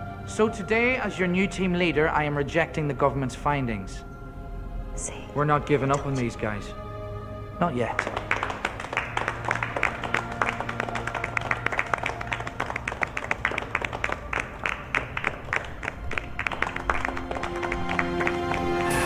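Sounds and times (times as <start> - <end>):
music of long held tones: 0.0 - 19.0
people clapping: 7.8 - 19.0.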